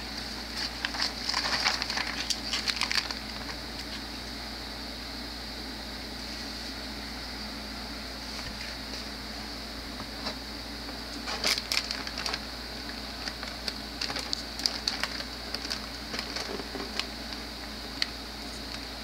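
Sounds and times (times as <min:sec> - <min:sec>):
plastic wrapping crinkling: 0:00.1 - 0:04.0, 0:11.2 - 0:18.8.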